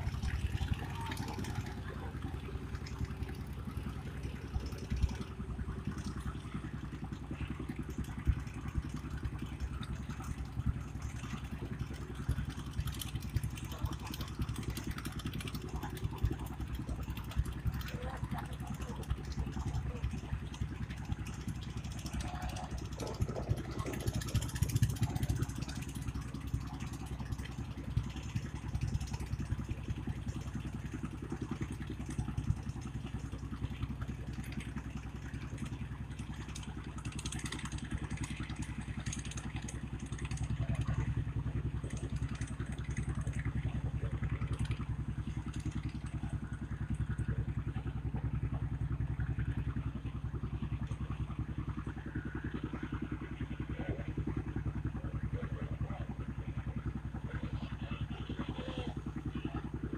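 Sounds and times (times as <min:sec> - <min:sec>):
boat engine throbbing hum: 0:00.0 - 0:59.9.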